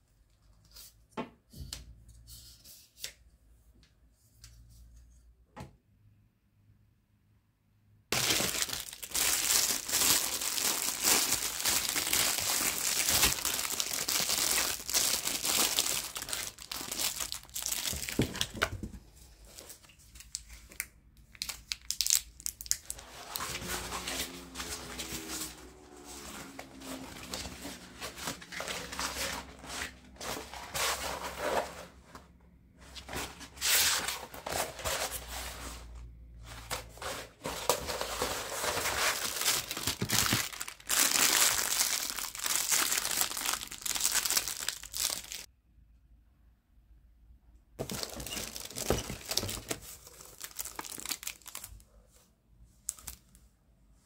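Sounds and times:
plastic wrap crinkling: 8.1s - 18.6s, 19.5s - 31.6s, 36.7s - 45.5s, 47.8s - 51.8s
paper print rustling: 23.0s - 32.2s.

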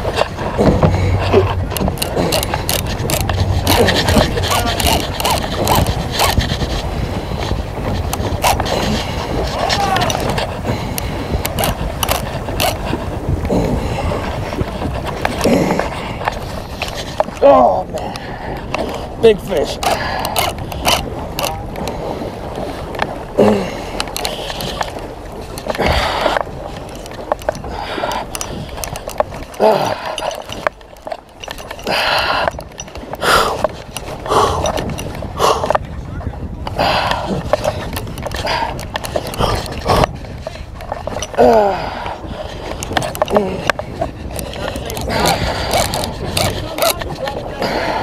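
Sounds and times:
water knocks and splashes: 0.0s - 23.3s
water lapping against boat hull: 0.0s - 48.0s
wind: 0.0s - 48.0s
clicks and knocks: 0.1s - 6.4s.

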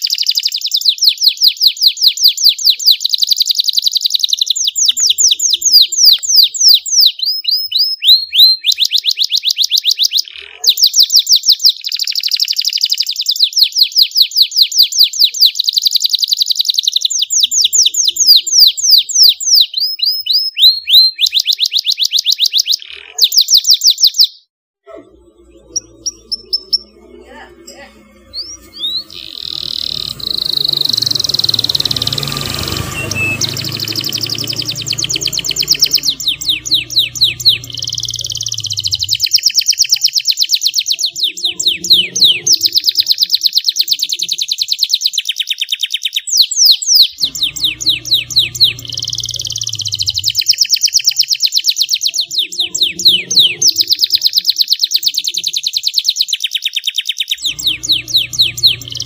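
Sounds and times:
canary singing: 0.0s - 59.0s
low hum: 24.9s - 39.3s, 47.2s - 50.5s, 57.4s - 59.0s.

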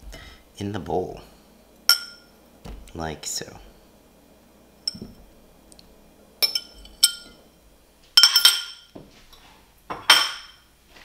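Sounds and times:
fork clinking against glass: 6.4s - 7.4s.

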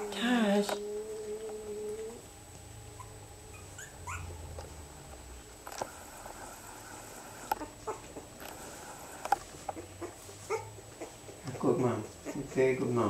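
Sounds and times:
puppies whimpering: 2.9s - 4.5s, 6.4s - 11.4s.

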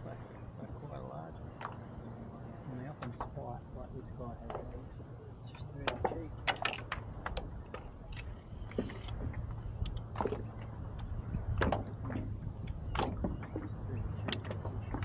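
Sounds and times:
steady low hum: 0.0s - 15.0s
fishing gear knocks and clicks: 5.4s - 15.0s.

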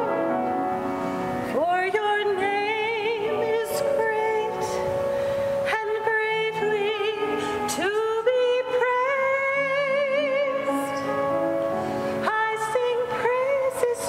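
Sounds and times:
woman singing with vibrato: 1.5s - 14.0s.

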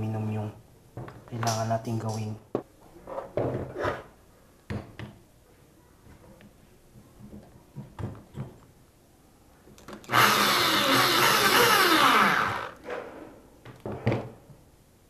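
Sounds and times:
electric drill boring metal: 10.1s - 12.8s.

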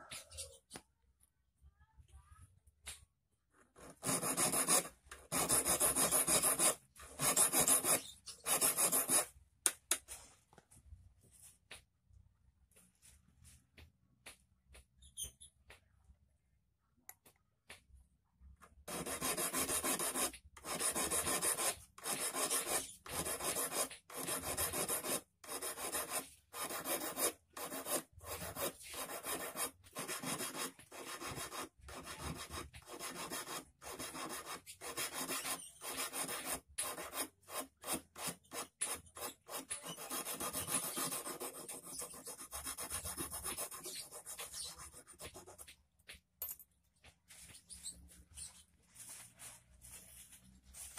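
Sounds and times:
file rasping on steel wire: 3.8s - 9.3s, 18.9s - 45.4s.

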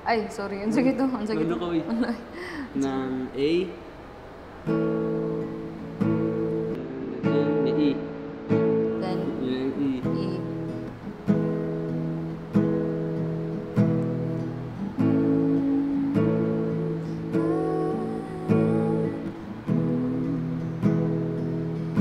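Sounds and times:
acoustic guitar strummed slowly: 4.4s - 22.0s.

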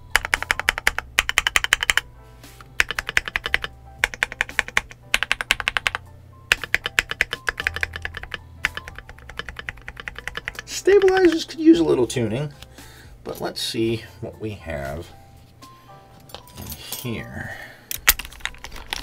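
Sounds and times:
mechanical keyboard typing: 0.0s - 2.0s, 2.8s - 11.6s.

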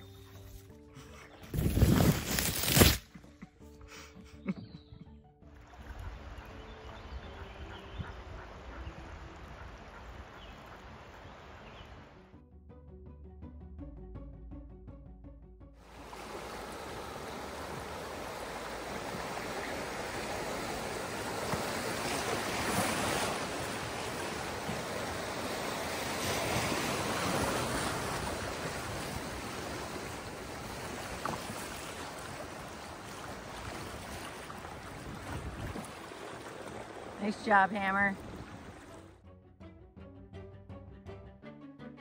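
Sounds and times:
river water rushing: 15.8s - 39.1s
waves splashing on hull: 15.9s - 39.2s
wind buffeting microphone: 33.6s - 36.1s.

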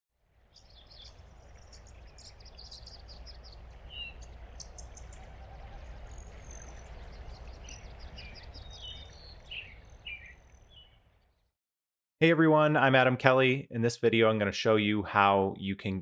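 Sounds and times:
birds chirping and singing: 0.5s - 11.2s
steady low rumble: 0.6s - 9.9s.

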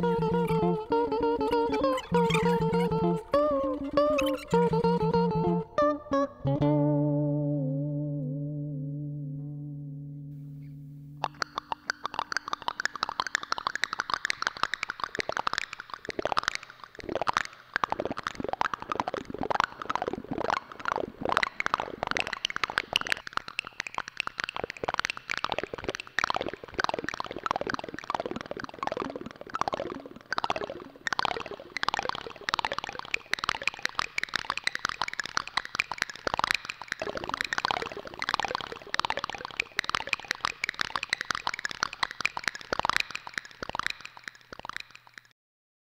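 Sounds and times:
held music note: 0.0s - 11.4s
quick clicks and pops: 11.2s - 45.3s.

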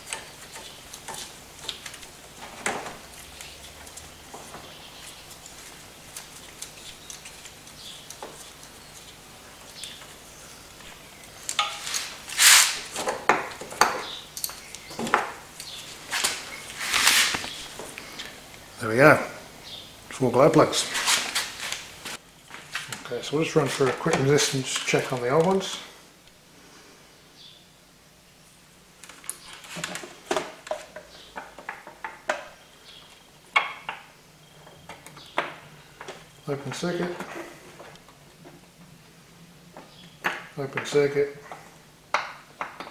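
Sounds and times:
scuffing rustles: 0.0s - 14.2s, 15.7s - 18.4s, 20.6s - 25.8s
metal tools clinking: 11.6s - 12.1s, 13.8s - 14.8s.

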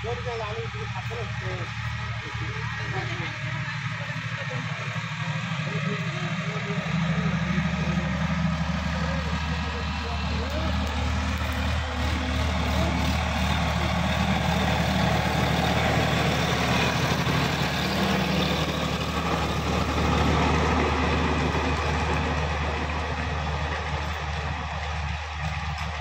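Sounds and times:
tractor diesel engine: 0.0s - 26.0s
rotary tiller churning soil: 7.9s - 26.0s.

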